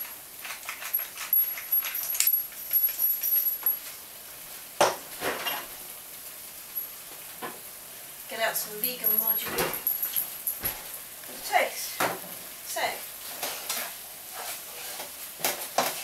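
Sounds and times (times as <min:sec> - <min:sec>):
pepper mill grinding: 0:00.0 - 0:03.9.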